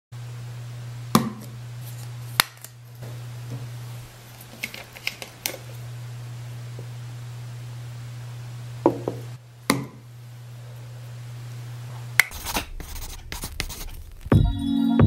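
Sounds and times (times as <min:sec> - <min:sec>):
low hum: 0:05.8 - 0:14.7.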